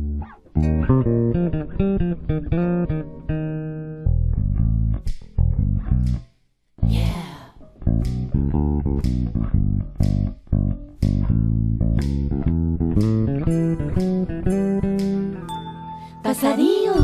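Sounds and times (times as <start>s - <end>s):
electric bass guitar plucking: 0.0s - 16.2s
sweep across bass strings: 7.6s - 17.0s.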